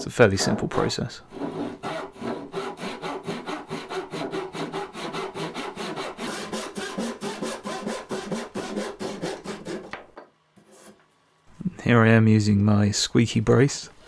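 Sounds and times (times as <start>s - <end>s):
hand saw cutting wood: 1.3s - 10.0s.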